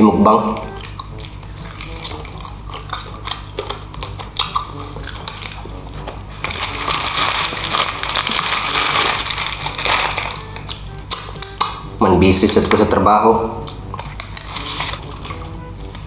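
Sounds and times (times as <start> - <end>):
chewing fried chicken: 0.4 - 16.0
paper wrapper crinkling: 0.6 - 4.2, 4.8 - 11.6, 14.0 - 16.0
mouth clicks and smacks: 0.6 - 6.6, 13.6 - 16.0.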